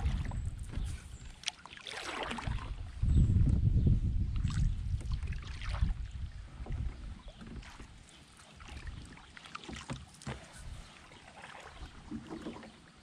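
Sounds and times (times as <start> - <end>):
wind rumbling on microphone: 0.0 - 1.4, 2.1 - 8.0, 8.6 - 9.2, 10.4 - 11.0
water splashing around canoe: 0.0 - 3.0, 4.3 - 13.0.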